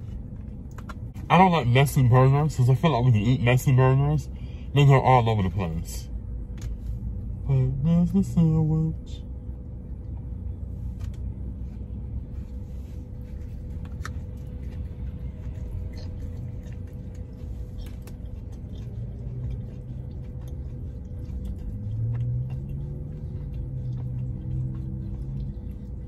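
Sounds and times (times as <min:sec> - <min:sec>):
low rumble inside car: 0:00.0 - 0:26.0
steady hum: 0:00.0 - 0:26.0
chewing clicks: 0:13.8 - 0:26.0.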